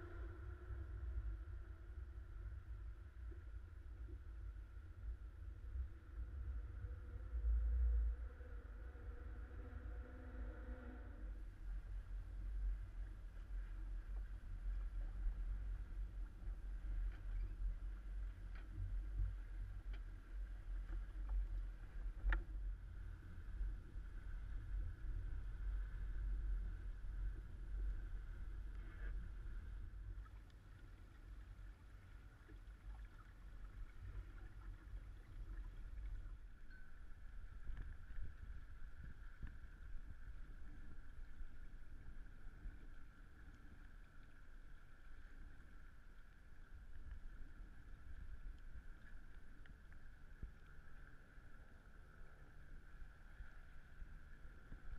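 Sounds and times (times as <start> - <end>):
low rumble: 0.0 - 54.9
water rushing along hull: 0.0 - 54.9
faint steady high tone: 36.5 - 38.6.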